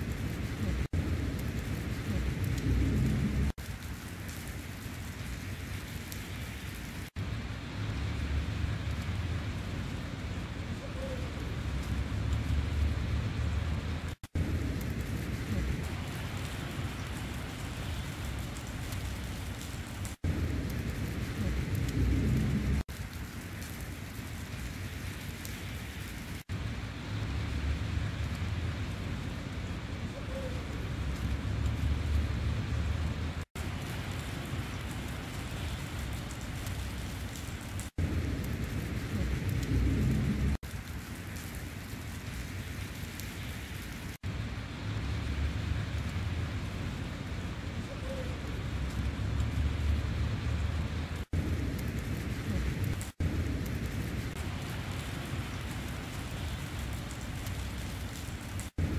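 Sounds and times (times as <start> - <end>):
wind rumble buffeting microphone: 0.0 - 10.8, 11.4 - 58.9
snowfall hiss: 0.0 - 58.9.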